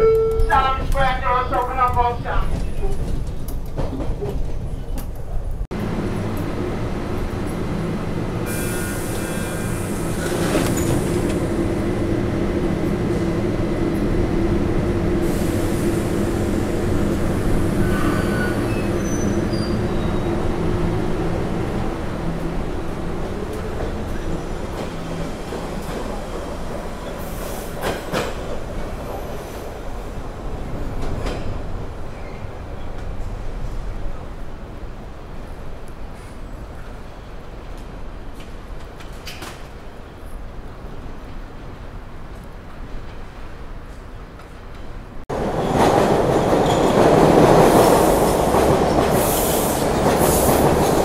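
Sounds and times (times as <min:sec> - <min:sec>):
wheels rumbling on rail: 0:00.1 - 0:51.0
high wheel squeal: 0:17.8 - 0:20.3.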